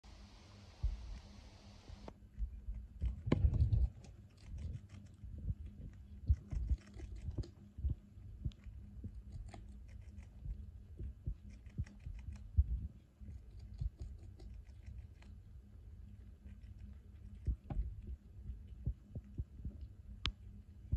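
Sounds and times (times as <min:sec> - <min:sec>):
squirrel chewing leaf: 0:00.2 - 0:15.4, 0:16.0 - 0:20.4.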